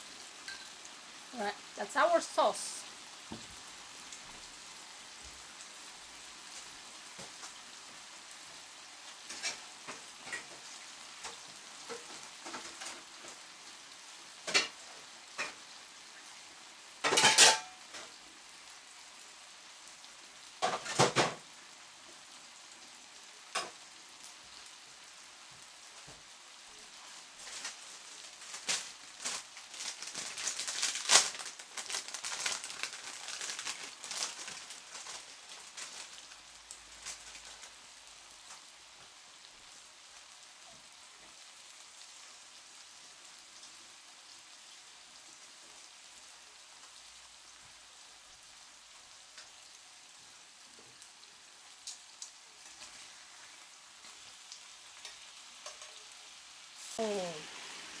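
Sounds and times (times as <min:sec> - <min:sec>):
pork sizzling in a skillet: 0:00.0 - 0:58.0.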